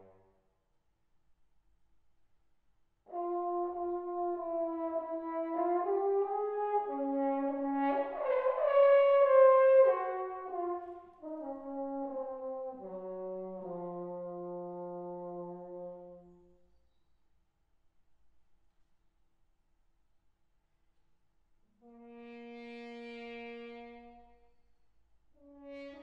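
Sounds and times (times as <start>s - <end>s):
solo french horn: 3.1s - 16.7s, 21.7s - 24.7s, 25.4s - 26.0s.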